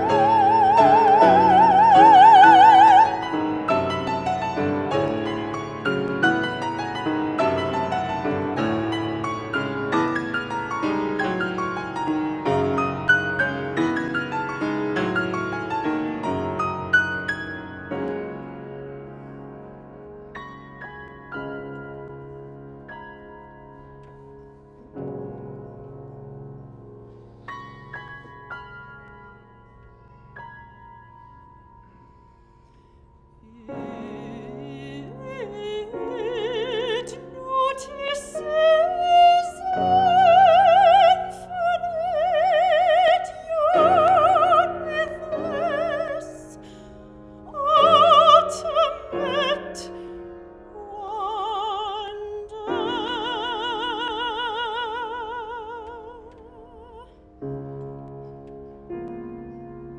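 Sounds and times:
soprano singing with vibrato: 0:00.0 - 0:05.4, 0:33.4 - 0:46.7, 0:47.4 - 0:50.1, 0:50.7 - 0:57.2
grand piano accompaniment: 0:00.0 - 0:59.9.

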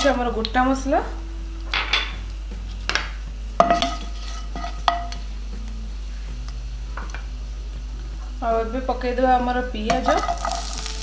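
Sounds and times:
spices sizzling in oil: 0:02.3 - 0:11.0
spatula stirring in a pan: 0:03.6 - 0:05.1.

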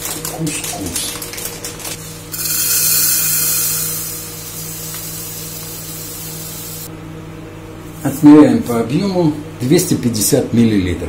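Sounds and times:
plastic packet crinkling: 0:00.0 - 0:02.0
dry grains pouring into plastic jug: 0:02.4 - 0:04.2.

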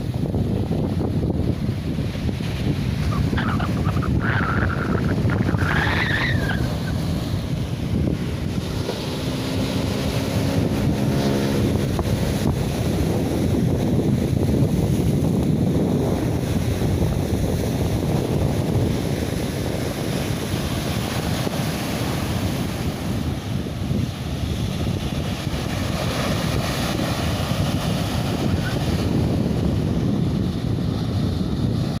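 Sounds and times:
sea waves on shore: 0:00.0 - 0:32.0
wind buffeting microphone: 0:00.0 - 0:32.0
low engine drone: 0:03.2 - 0:15.6.

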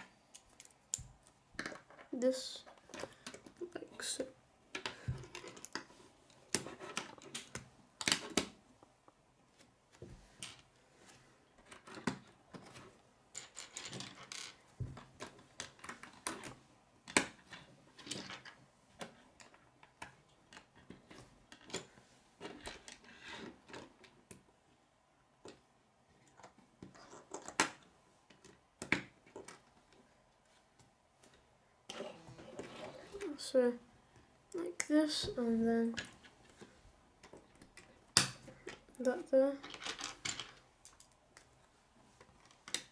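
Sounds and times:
plastic pieces clicking together: 0:00.3 - 0:02.1.

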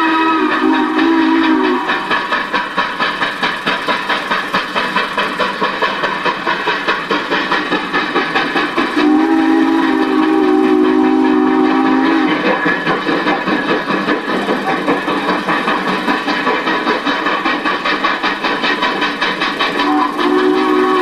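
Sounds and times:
steam locomotive whistle chord: 0:00.0 - 0:02.1, 0:09.0 - 0:12.4, 0:19.8 - 0:21.0
steam locomotive exhaust chuffs: 0:00.0 - 0:21.0.

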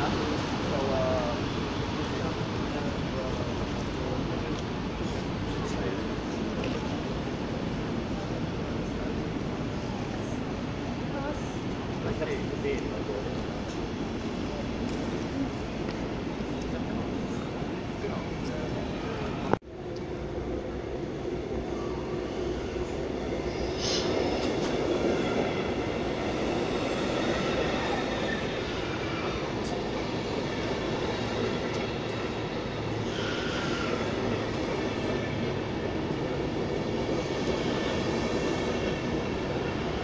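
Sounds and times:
train rolling rumble: 0:00.0 - 0:40.0
wheel and brake squeals: 0:32.9 - 0:34.4.

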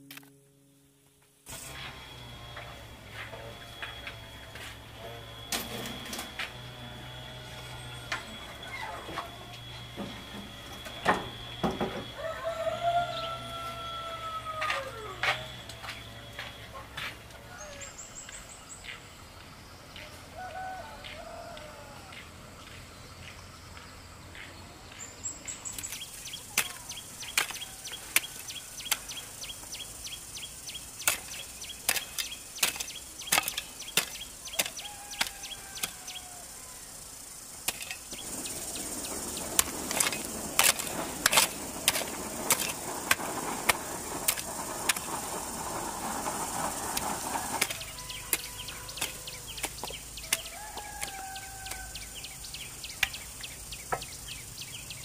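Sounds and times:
birds whistling: 0:03.6 - 0:16.9, 0:17.5 - 0:21.4, 0:22.1 - 0:55.0
bare feet on stony soil: 0:12.2 - 0:36.5, 0:37.6 - 0:55.0.

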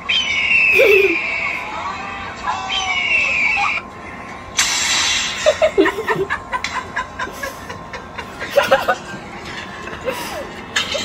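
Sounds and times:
faint music: 0:00.0 - 0:11.0
children stifling laughter: 0:00.7 - 0:01.2.

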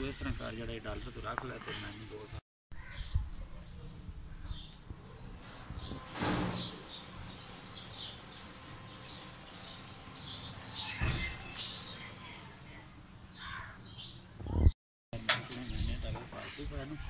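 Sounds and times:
small birds chirping: 0:02.8 - 0:14.8.

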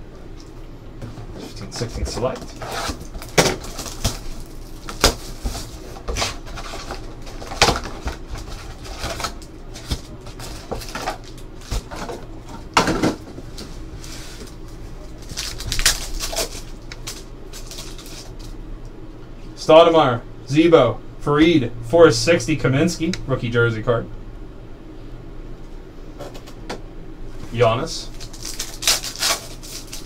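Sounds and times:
foil packs crinkling: 0:01.6 - 0:12.6, 0:14.4 - 0:18.6, 0:28.0 - 0:30.0
foil packs ripping open: 0:01.9 - 0:12.1, 0:15.2 - 0:18.5, 0:28.1 - 0:30.0.

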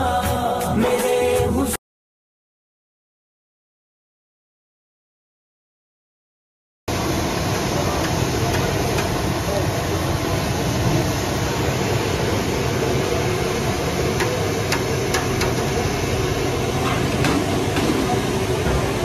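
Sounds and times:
busy market street noise: 0:06.9 - 0:19.0.

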